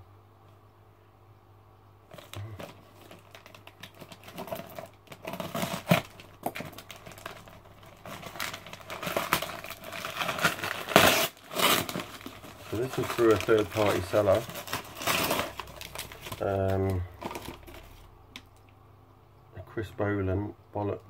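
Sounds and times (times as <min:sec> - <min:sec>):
paper tearing: 0:02.1 - 0:18.0
paper crinkling: 0:02.1 - 0:18.1.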